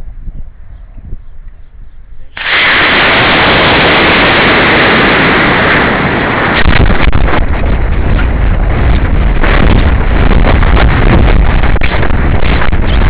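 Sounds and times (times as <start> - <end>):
wind buffeting camera: 0.0 - 13.0
rocket motor rushing hiss: 2.3 - 7.2.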